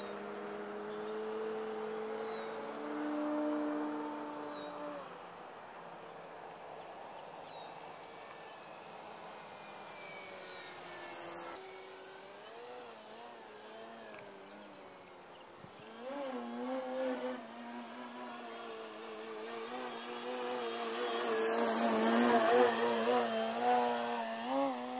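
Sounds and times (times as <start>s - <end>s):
rc plane motor whine: 7.4s - 24.9s.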